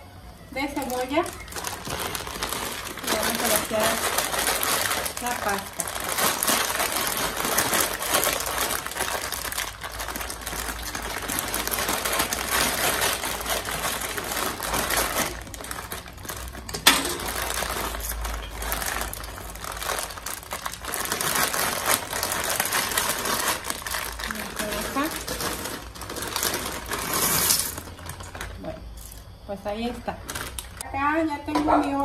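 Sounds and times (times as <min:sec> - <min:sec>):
dry pasta rattling into pot: 0:00.6 - 0:29.2
plastic bag crinkling: 0:00.6 - 0:30.9.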